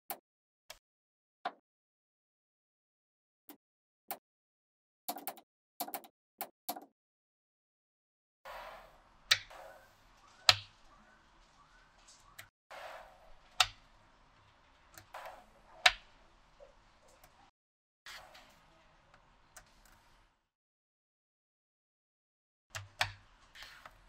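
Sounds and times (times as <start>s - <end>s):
magnetic balls clicking: 9.2s - 10.9s, 13.4s - 16.3s.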